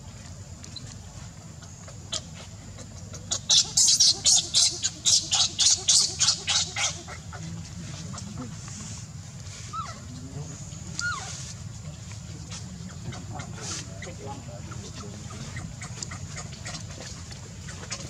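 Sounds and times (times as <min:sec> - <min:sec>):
baby monkey screaming: 0:03.2 - 0:07.4, 0:11.0 - 0:11.5.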